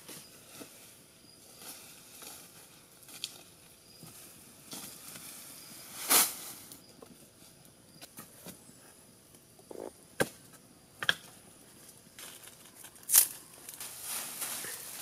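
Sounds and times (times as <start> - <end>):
grass bundle dropped crash: 5.9 - 6.7
footsteps on dry leaves: 12.2 - 15.0.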